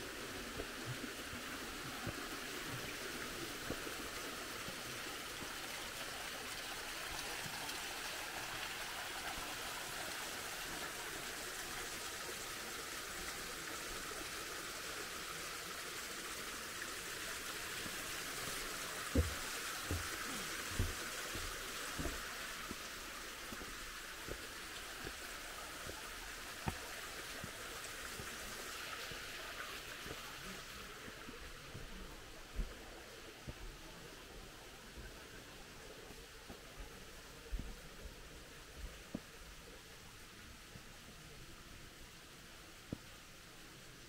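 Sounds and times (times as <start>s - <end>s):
running water flowing: 0.0s - 44.0s
soft thumps: 19.1s - 20.2s.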